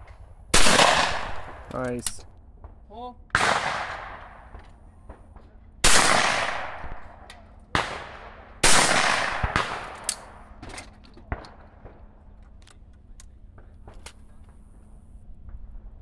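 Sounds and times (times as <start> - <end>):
shotgun shots echoing: 0.5 - 2.1, 3.3 - 10.6.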